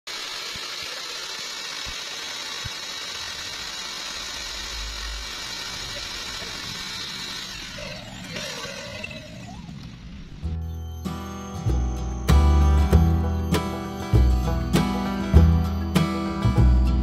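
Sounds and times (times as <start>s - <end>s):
water spraying from hose: 0.1s - 8.6s
electric drill whining: 0.1s - 17.0s.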